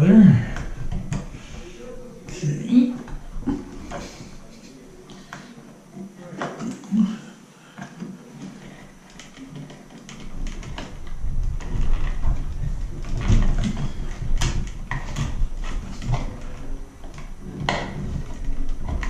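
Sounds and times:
wires scraping and rustling: 0.0 - 19.0
wires clicking against plastic box: 7.8 - 19.0.

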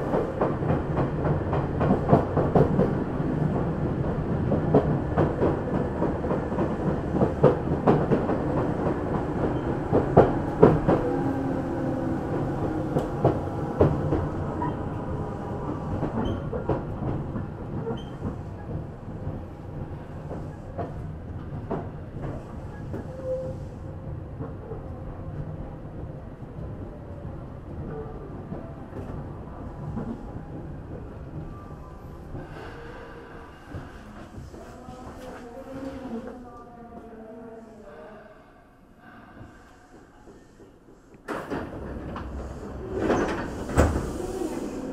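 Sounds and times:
train rumble: 0.0 - 37.6, 38.3 - 44.9.

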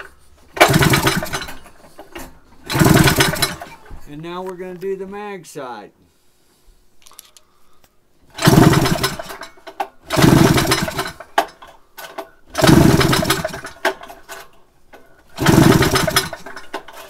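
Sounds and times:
engine cranking without firing: 0.0 - 3.9, 8.3 - 17.0.

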